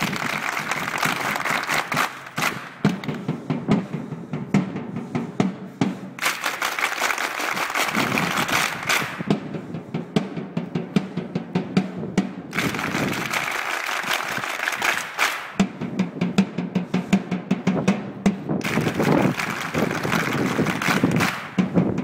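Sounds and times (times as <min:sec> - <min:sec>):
crowd clapping in rhythm: 0:00.0 - 0:03.3, 0:06.0 - 0:09.4, 0:12.5 - 0:15.7, 0:18.6 - 0:22.0.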